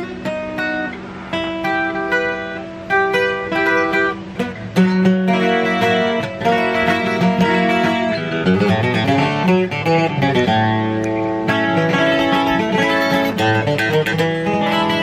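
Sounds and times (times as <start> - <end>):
twelve-string acoustic guitar playing: 0.0 - 15.0.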